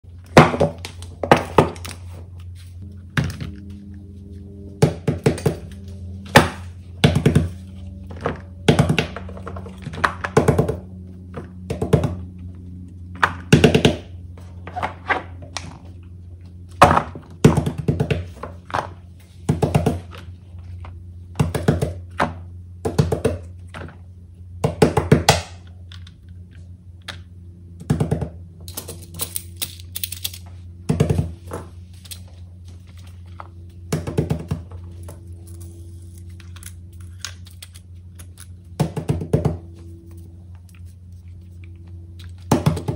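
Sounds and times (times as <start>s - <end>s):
soft background music: 2.6s - 14.0s.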